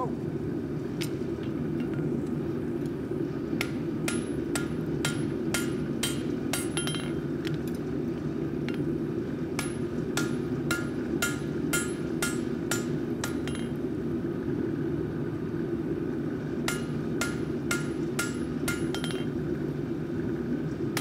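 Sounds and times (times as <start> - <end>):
hammer striking hot steel on anvil: 3.6 - 7.3, 9.5 - 13.9, 16.6 - 19.4.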